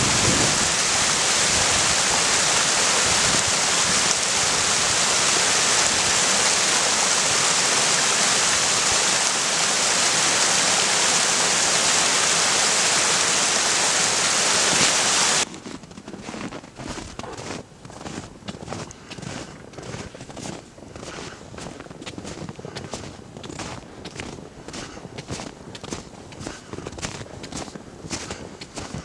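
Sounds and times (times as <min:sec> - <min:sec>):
water rushing in a stream: 0:00.0 - 0:15.5
footsteps on snow: 0:00.0 - 0:29.0.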